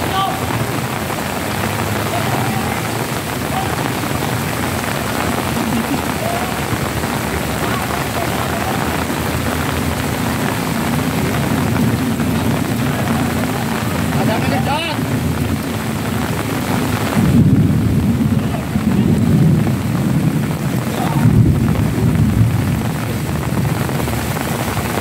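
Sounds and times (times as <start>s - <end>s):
heavy rain falling: 0.0s - 25.0s
low rumble: 4.5s - 23.7s.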